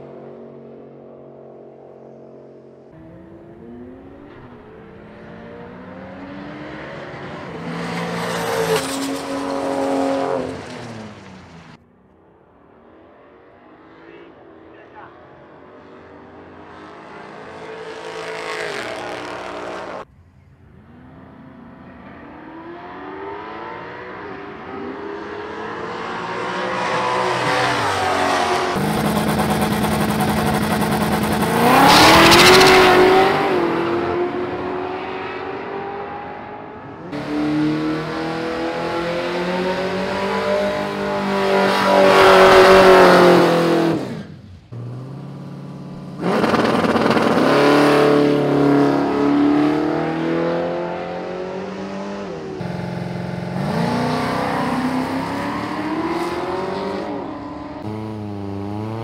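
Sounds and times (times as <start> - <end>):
race cars accelerating and passing: 0.0 - 11.8, 12.4 - 59.0.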